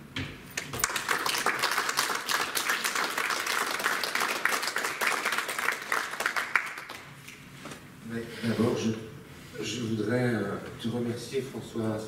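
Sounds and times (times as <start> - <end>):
audience applauding: 0.6 - 7.2.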